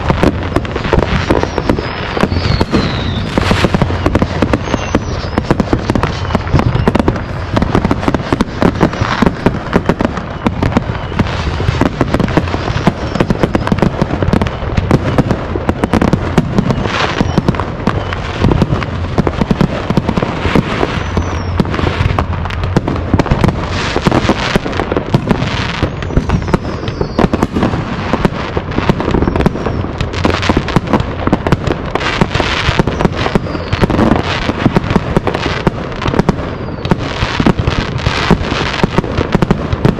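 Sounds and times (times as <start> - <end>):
fireworks bangs and crackles: 0.0 - 39.9
fireworks falling whistles: 0.0 - 39.9.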